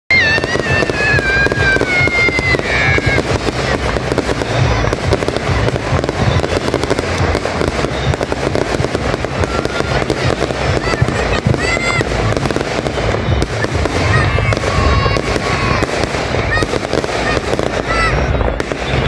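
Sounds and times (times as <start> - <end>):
high falling whistle: 0.1 - 5.0
fireworks booming and crackling: 0.1 - 19.0.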